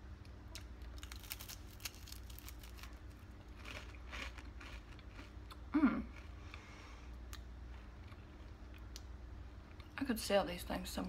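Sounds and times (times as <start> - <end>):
cracker crunching while chewed: 0.5 - 6.6.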